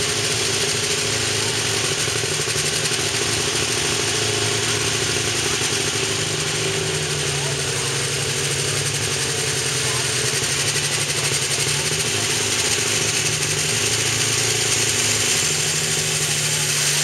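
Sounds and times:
strong hiss: 0:00.0 - 0:17.0
tractor engine running: 0:00.0 - 0:17.0.

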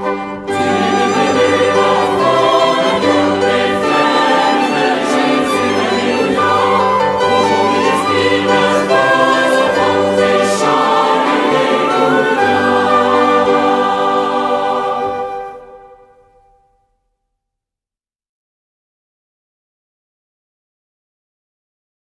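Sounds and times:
choir singing with instruments: 0:00.0 - 0:16.5.

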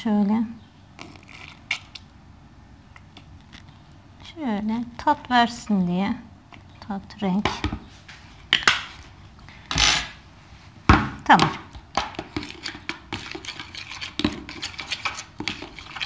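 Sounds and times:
metal spoon scraping a bowl: 0:12.1 - 0:16.0.

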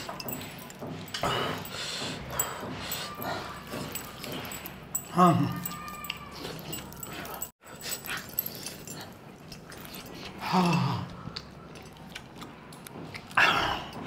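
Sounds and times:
wet chewing and lip-smacking: 0:07.9 - 0:14.0.

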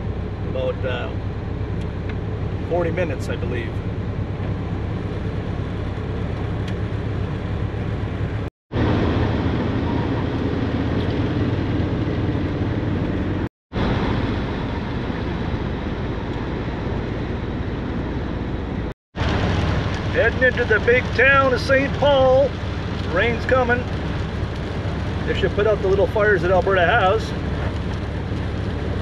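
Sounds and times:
van engine and tyre noise: 0:00.0 - 0:29.0.

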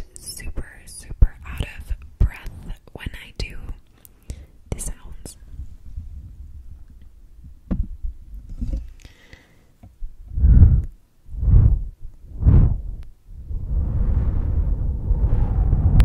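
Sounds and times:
breath blowing on microphone: 0:10.2 - 0:16.0.

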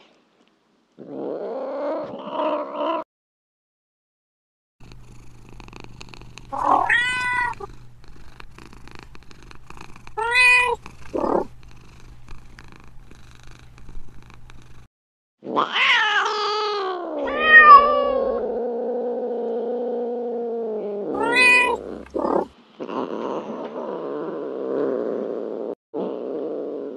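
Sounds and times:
faint low hum: 0:04.8 - 0:14.9, 0:17.0 - 0:25.7
cat meowing: 0:06.5 - 0:07.7, 0:10.2 - 0:11.4, 0:15.5 - 0:18.5, 0:21.2 - 0:22.5.

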